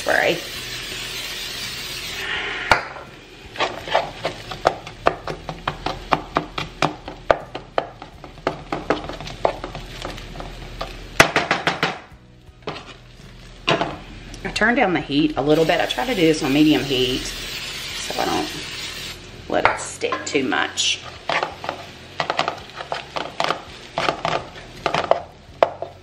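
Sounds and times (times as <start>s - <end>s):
potatoes frying: 0.0s - 2.2s, 3.2s - 11.5s, 12.4s - 26.0s
spatula tapping a skillet: 4.5s - 12.0s, 21.3s - 26.0s.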